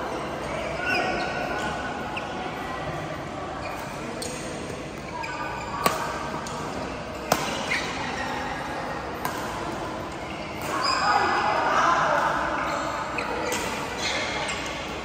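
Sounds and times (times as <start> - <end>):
murmur of voices: 0.0 - 15.0
racket hitting shuttlecock: 5.8 - 8.0, 9.2 - 9.9.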